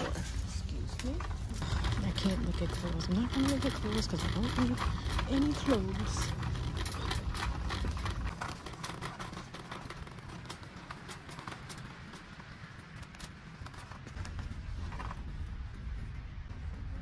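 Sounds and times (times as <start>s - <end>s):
cart clicks and rattles: 0.0s - 17.0s
shopping cart wheels rumbling: 0.0s - 17.0s.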